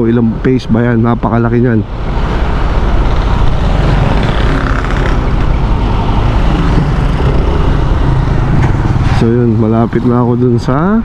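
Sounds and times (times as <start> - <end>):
wind and road noise: 0.0 - 11.0
scooter engine running: 3.6 - 5.8, 6.4 - 9.0.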